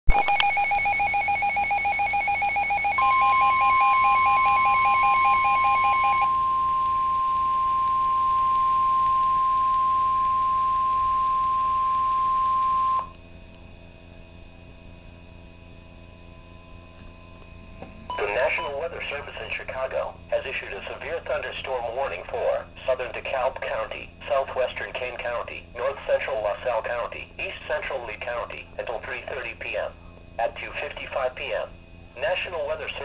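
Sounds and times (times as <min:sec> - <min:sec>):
steady alarm tone: 0:00.1 - 0:13.2, 0:18.1 - 0:19.2
low hum: 0:00.1 - 0:23.1.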